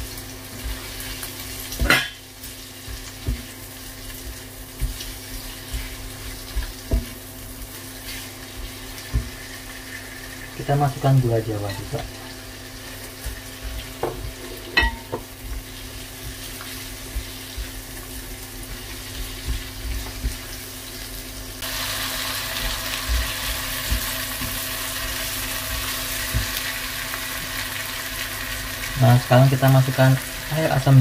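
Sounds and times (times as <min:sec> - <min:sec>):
vegetables sizzling in hot oil: 0:00.0 - 0:31.0
spatula knocking on wok: 0:04.2 - 0:07.2, 0:13.2 - 0:17.9, 0:22.6 - 0:24.6.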